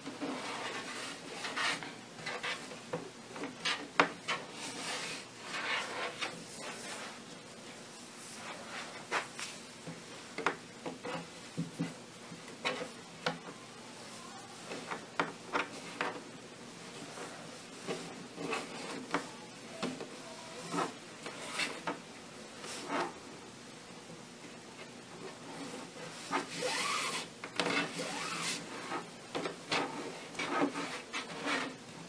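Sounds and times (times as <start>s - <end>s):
cord rubbing and swishing: 3.7s - 7.4s, 25.3s - 29.1s.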